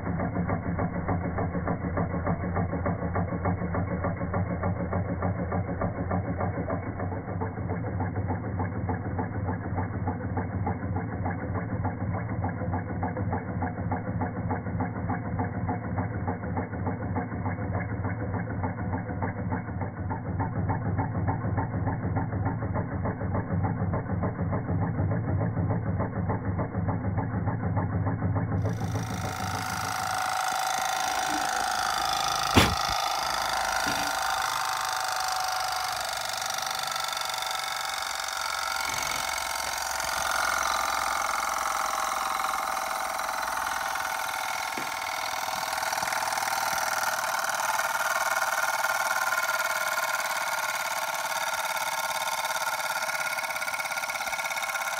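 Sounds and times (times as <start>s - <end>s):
model steam engine chuffing: 0.0s - 54.9s
steady hissing whir: 28.6s - 49.4s
sharp click: 32.4s - 33.2s.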